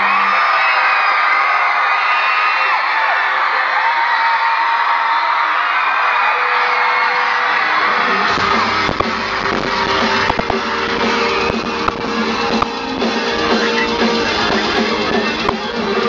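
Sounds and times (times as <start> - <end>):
distorted electric guitars: 7.6 - 16.0
bass guitar: 7.8 - 16.0
drum kit: 8.0 - 16.0.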